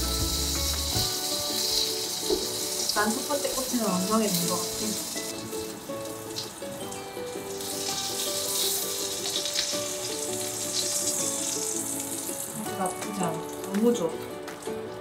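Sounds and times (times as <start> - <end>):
oil sizzling in frying pan: 0.0 - 15.0.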